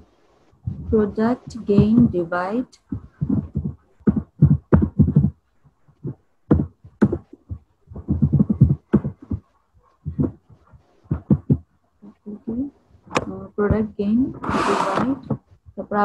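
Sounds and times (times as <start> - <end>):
person speaking in broken phrases: 0.7 - 3.4, 12.0 - 16.0.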